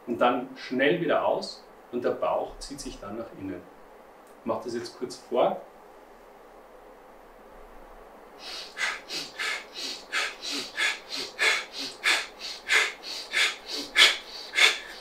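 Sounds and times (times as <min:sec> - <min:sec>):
man breathing fast and hard: 0:08.4 - 0:15.0.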